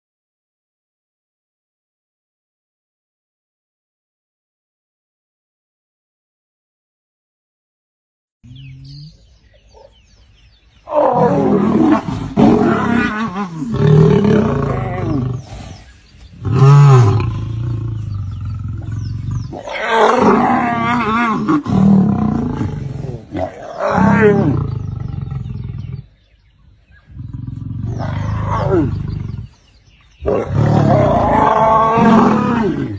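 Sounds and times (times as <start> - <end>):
lions roaring: 10.9 - 26.1, 27.1 - 29.6, 30.2 - 32.9.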